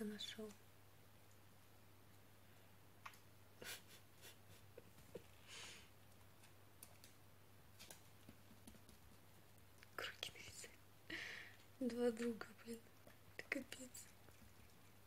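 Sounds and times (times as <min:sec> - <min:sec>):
soft hiss: 0:00.0 - 0:15.0.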